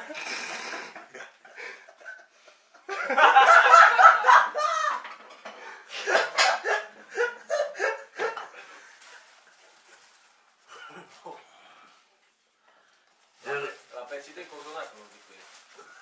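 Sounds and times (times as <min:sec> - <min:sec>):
men laughing: 0:00.0 - 0:05.2, 0:05.9 - 0:08.7.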